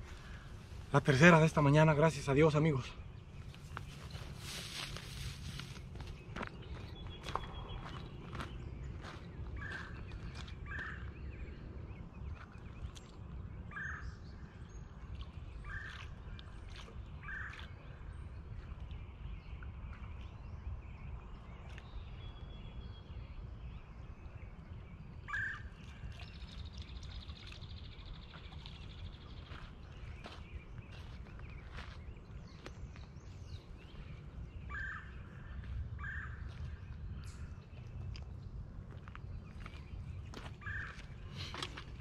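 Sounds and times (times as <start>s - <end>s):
bird calling: 25.3s - 26.0s, 34.6s - 36.5s, 40.3s - 41.9s.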